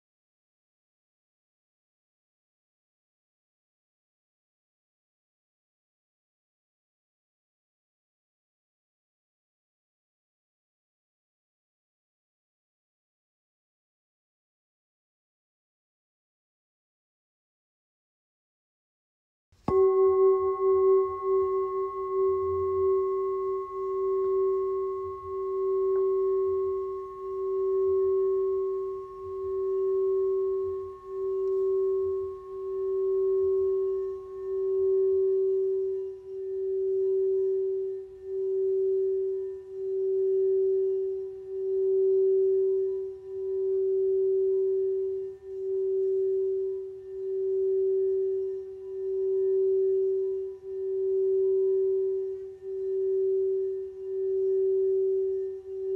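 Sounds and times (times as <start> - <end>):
singing bowl ringing: 19.7 - 55.9.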